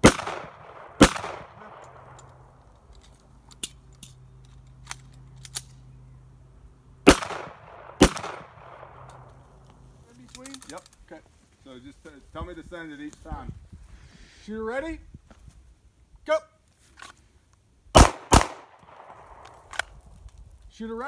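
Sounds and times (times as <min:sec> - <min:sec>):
pistol shots echoing: 0:00.0 - 0:02.6, 0:07.0 - 0:09.3, 0:18.0 - 0:19.8
magazine reload clicks: 0:00.0 - 0:05.9, 0:07.1 - 0:11.0, 0:18.0 - 0:20.0.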